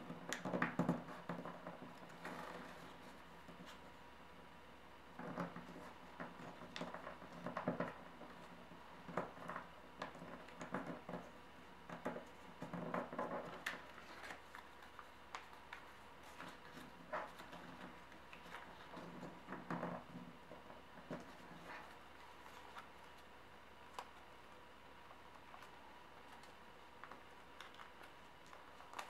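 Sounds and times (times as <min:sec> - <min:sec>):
steady hum: 0:07.9 - 0:29.0
paper rustling and crinkling: 0:12.9 - 0:19.7, 0:21.0 - 0:23.3, 0:25.3 - 0:29.0.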